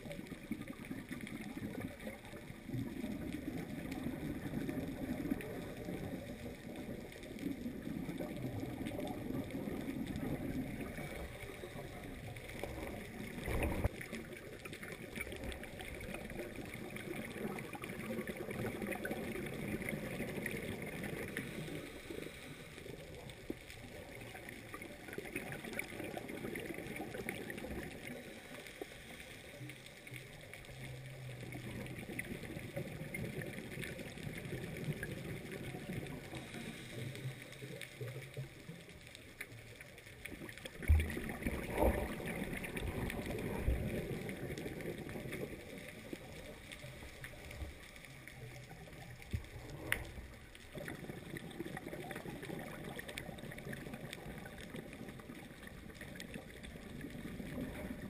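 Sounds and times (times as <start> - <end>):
underwater regulator bubbles: 0.0 - 58.0.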